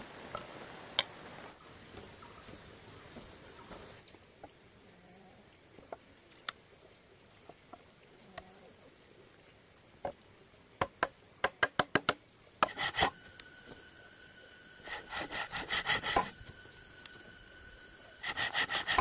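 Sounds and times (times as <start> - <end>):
high insect drone: 0.4 - 19.0
light knocks on bamboo: 10.8 - 12.8
sharp wooden taps: 10.8 - 12.8
rasping scrape: 12.6 - 13.2, 14.8 - 16.5, 18.2 - 19.0.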